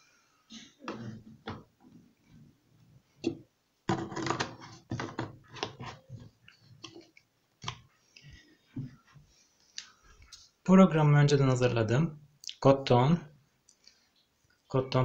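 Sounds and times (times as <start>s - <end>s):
plastic bottles clicking and knocking: 3.2s - 7.9s.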